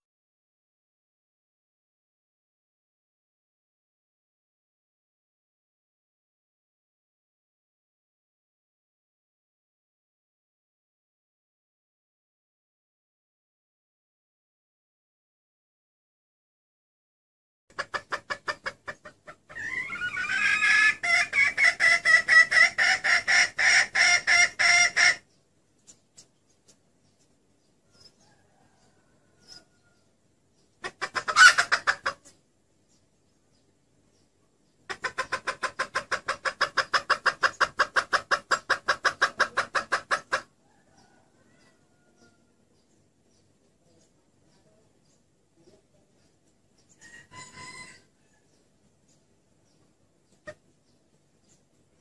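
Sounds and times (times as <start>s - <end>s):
hen clucking and calling: 17.7s - 52.0s.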